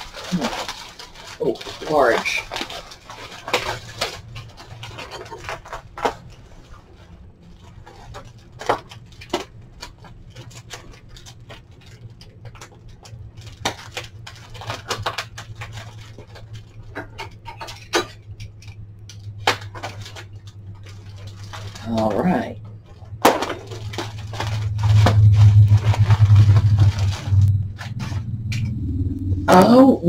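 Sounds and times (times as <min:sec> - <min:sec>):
plastic and bubble wrap crinkling: 0:00.0 - 0:28.6
steady low hum: 0:00.0 - 0:30.0.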